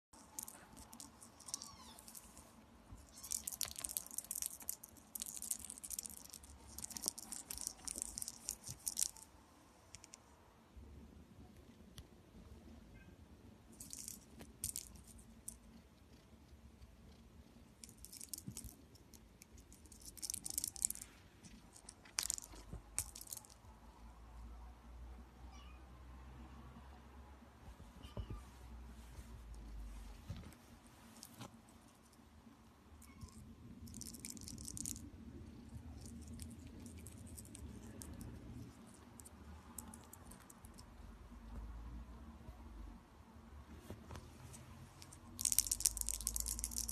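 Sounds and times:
kitten claws scratching and clicking: 0:00.2 - 0:02.5, 0:03.2 - 0:09.3, 0:17.8 - 0:23.6, 0:33.1 - 0:40.9, 0:45.0 - 0:46.9
toy ball rattling: 0:00.2 - 0:09.3, 0:13.7 - 0:15.7, 0:17.8 - 0:23.6, 0:33.0 - 0:40.9, 0:45.0 - 0:46.9.

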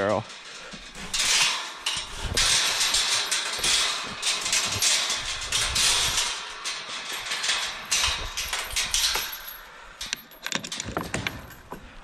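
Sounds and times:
rustling: 0:00.0 - 0:09.6
metal gate rattling and scraping: 0:00.0 - 0:12.0.

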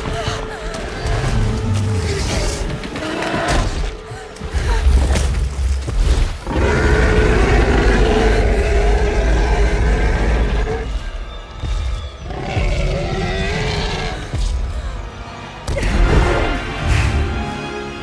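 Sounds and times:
orchestral score: 0:00.0 - 0:18.0
dinosaur roaring: 0:06.5 - 0:10.9.

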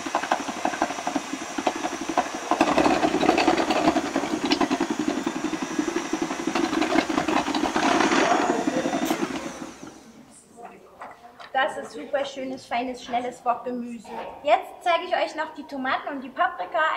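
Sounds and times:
food processor dicing carrots: 0:00.0 - 0:10.2.

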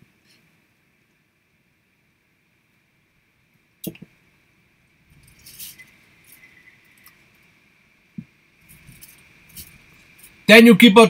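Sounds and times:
thin steady whistle: 0:05.8 - 0:07.2.

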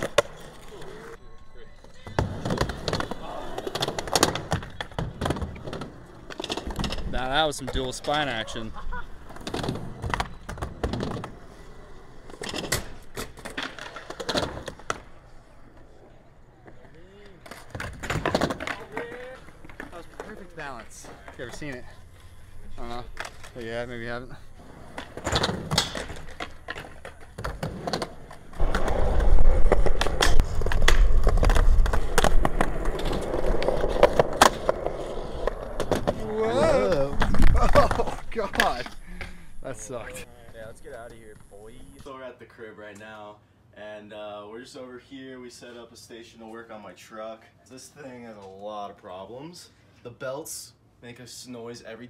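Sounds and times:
skateboards rolling: 0:00.0 - 0:42.1
skateboards clacking on ramps: 0:02.1 - 0:08.5, 0:17.4 - 0:21.9, 0:22.8 - 0:39.0.

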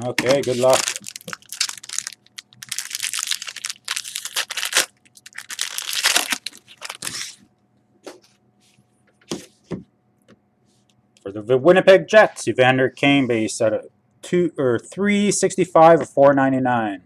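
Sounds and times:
cards rustling: 0:00.0 - 0:07.4
wrapper crinkling and tearing: 0:00.2 - 0:07.4.

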